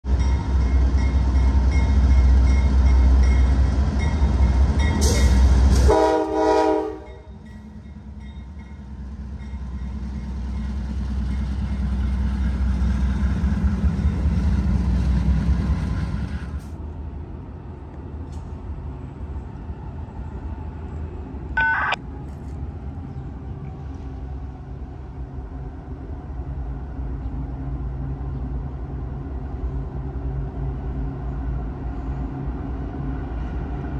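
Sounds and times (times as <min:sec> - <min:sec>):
diesel locomotives rumbling: 0:00.0 - 0:33.9
train horn blast: 0:05.8 - 0:07.3
brief high-pitched sound: 0:21.6 - 0:22.0.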